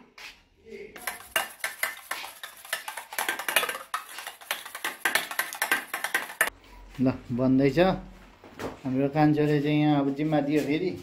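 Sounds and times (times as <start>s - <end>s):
whisk clinking in metal bowl: 1.0s - 6.5s.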